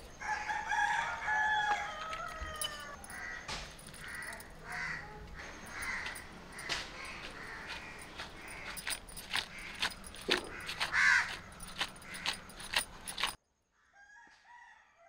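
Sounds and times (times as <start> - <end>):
rooster crowing: 0.2 - 5.0, 13.9 - 15.0.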